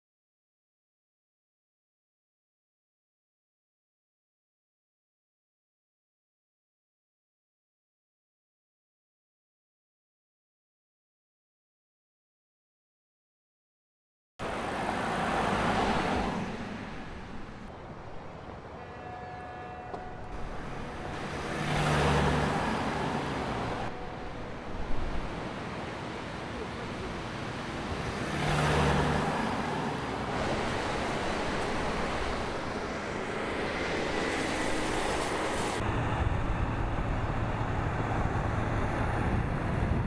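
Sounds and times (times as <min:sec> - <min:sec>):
car and road noise: 0:14.4 - 0:40.0
low engine tone: 0:35.8 - 0:40.0.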